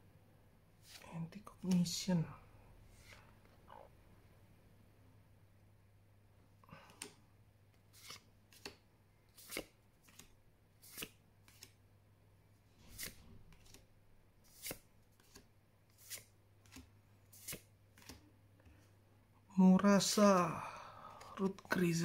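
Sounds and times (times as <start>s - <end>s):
cards flicking and swishing: 7.9s - 11.8s, 12.8s - 18.2s.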